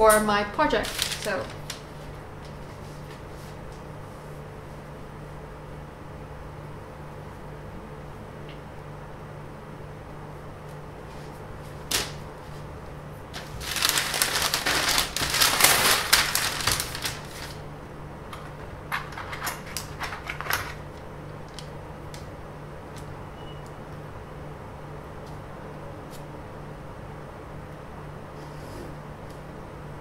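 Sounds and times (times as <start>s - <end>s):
low steady hum: 0.0s - 30.0s
paper rustling and crinkling: 0.7s - 3.6s, 11.1s - 12.7s, 13.3s - 17.6s.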